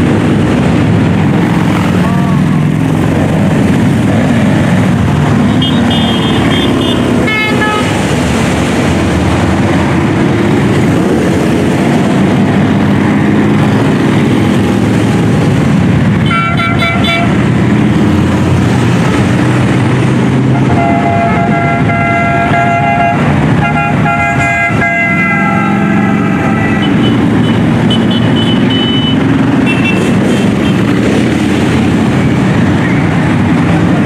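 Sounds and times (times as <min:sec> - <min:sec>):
motorcycle engines rumbling: 0:00.0 - 0:34.0
horn toots: 0:05.5 - 0:08.0, 0:16.2 - 0:17.4, 0:20.6 - 0:30.8.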